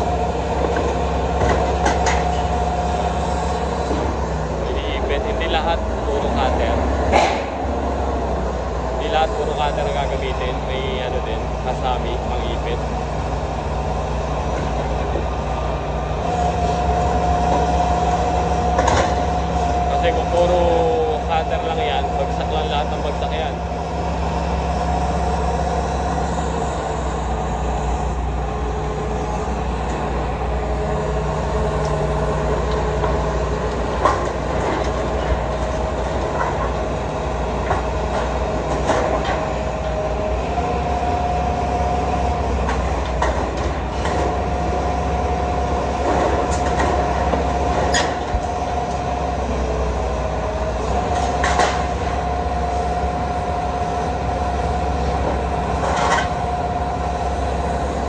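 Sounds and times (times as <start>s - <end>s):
excavator diesel engine humming: 0.0s - 58.0s
hydraulic whine: 0.0s - 58.0s
metal clanks and knocks: 0.6s - 2.6s, 7.0s - 7.6s, 18.7s - 19.7s, 37.6s - 39.6s, 51.1s - 52.0s.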